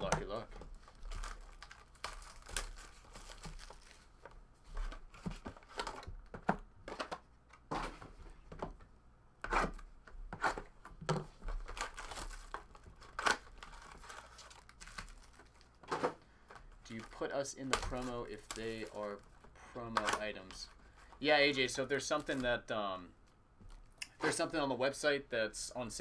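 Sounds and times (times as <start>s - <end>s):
plastic wrapping tearing and crinkling: 0.1s - 4.1s, 11.6s - 15.8s, 16.9s - 19.3s.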